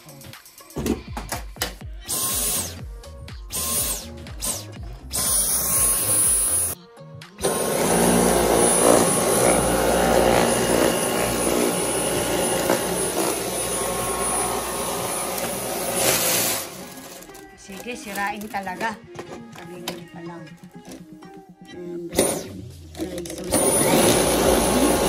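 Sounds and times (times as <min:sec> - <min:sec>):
background music: 0:00.0 - 0:25.0
vacuum cleaner running: 0:07.4 - 0:17.2, 0:23.5 - 0:25.0.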